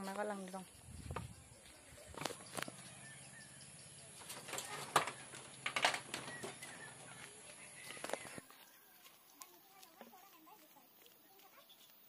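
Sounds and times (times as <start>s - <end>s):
faint bird chirps: 0.1s - 5.5s, 6.2s - 9.0s, 11.2s - 12.0s.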